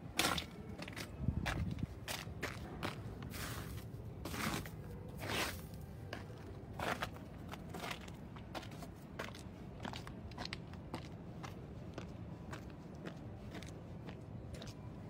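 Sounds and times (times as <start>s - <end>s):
footsteps in slushy snow: 2.1s - 9.4s.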